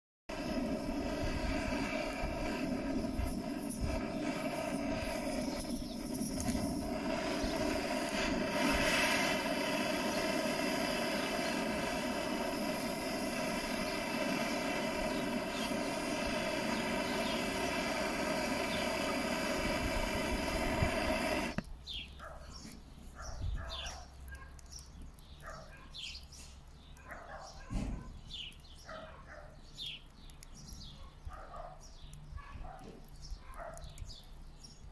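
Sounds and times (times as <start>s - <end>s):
blowtorch flame hissing: 0.3s - 22.8s.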